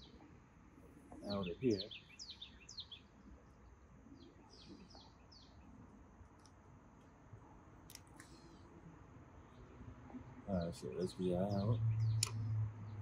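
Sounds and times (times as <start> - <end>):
bird chirps: 1.2 - 3.3, 4.1 - 5.8, 10.5 - 13.0.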